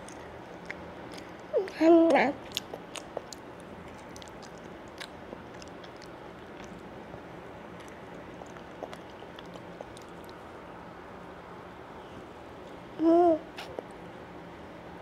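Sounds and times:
toddler chewing food: 0:00.0 - 0:10.5, 0:12.6 - 0:14.1.

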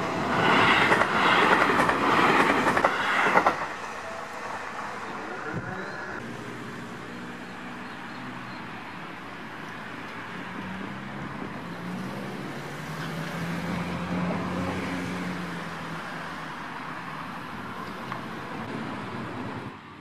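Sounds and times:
electric train passing: 0:00.0 - 0:07.4
wheel and rail noise: 0:00.0 - 0:20.0.

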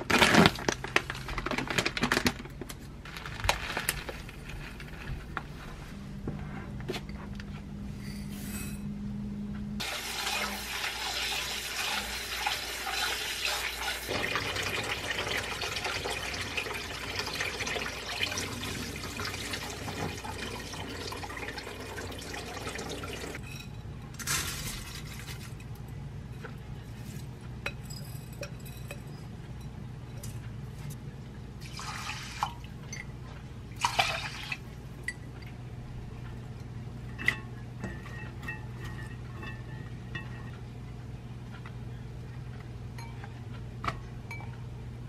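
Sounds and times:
tap water running into bowl: 0:09.8 - 0:23.4.

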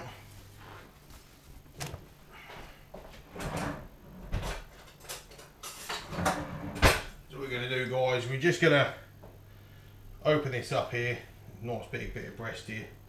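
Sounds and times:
kitchen drawer opening: 0:03.3 - 0:07.1.

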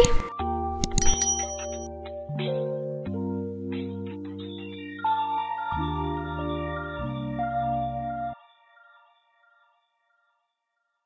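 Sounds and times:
background music of held chords: 0:00.0 - 0:09.6
short high ding: 0:00.9 - 0:01.9.

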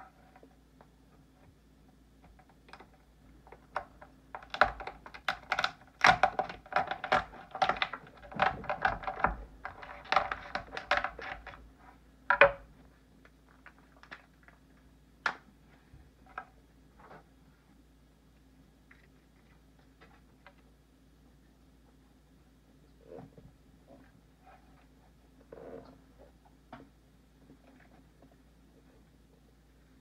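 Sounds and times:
lobster shell cracking: 0:03.8 - 0:11.6.

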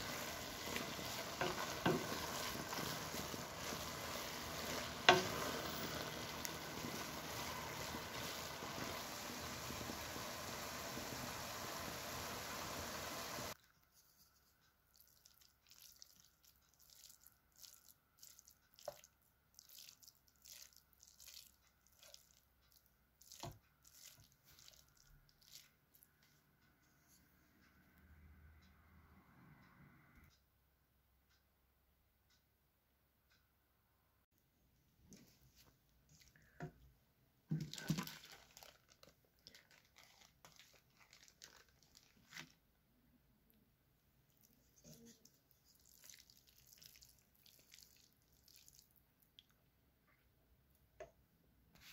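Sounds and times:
wooden spoon stirring in metal pot: 0:00.0 - 0:27.2, 0:37.5 - 0:42.6
plastic bags crinkling: 0:37.5 - 0:42.6.

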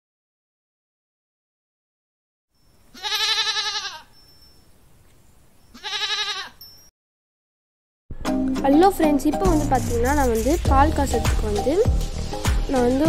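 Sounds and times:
sheep or goat bleating: 0:02.9 - 0:04.1, 0:05.7 - 0:06.6.

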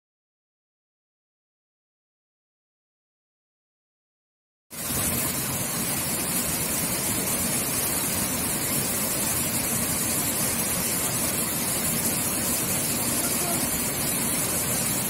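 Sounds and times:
waterfall splashing into pool: 0:04.8 - 0:15.0.

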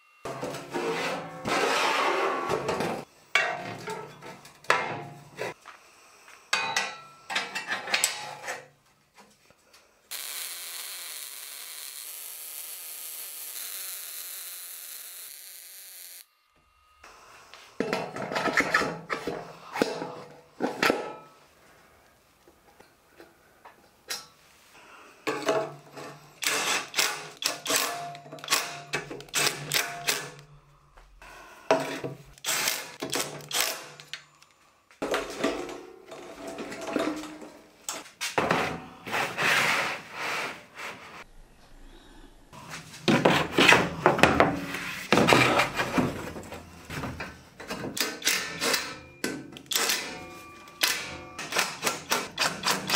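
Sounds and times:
metal parts clanking: 0:47.6 - 0:52.9.

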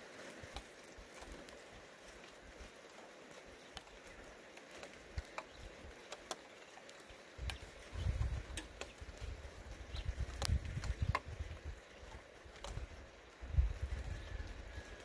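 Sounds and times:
faint sharp ticks: 0:04.6 - 0:07.7, 0:08.5 - 0:09.2, 0:10.2 - 0:11.4, 0:12.6 - 0:12.8.

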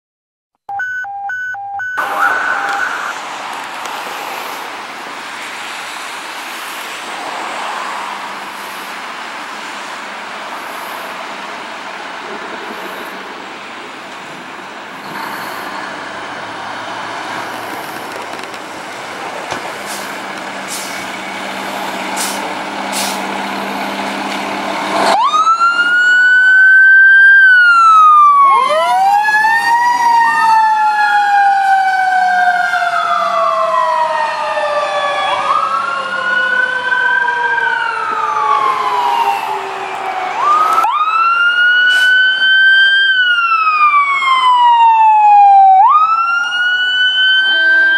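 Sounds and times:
wailing electronic sirens: 0:00.7 - 0:03.4, 0:25.0 - 0:47.9
fire engine diesel engine: 0:02.0 - 0:47.9
short air hisses: 0:19.8 - 0:21.0, 0:22.2 - 0:23.3.

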